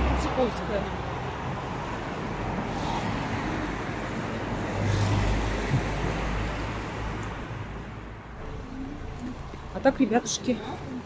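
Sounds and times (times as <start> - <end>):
street traffic: 0.0 - 11.0
vehicle engine passing close: 3.1 - 10.9.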